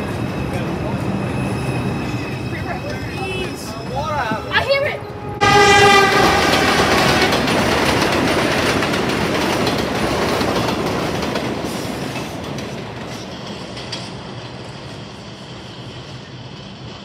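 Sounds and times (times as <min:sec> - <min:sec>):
train wheels clattering over rails: 0:05.8 - 0:17.0.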